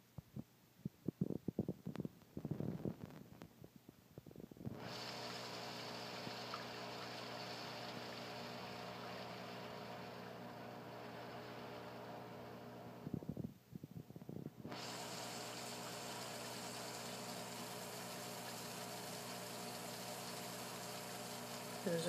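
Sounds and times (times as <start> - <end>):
motor humming with hiss: 4.7 - 13.3, 14.6 - 22.0.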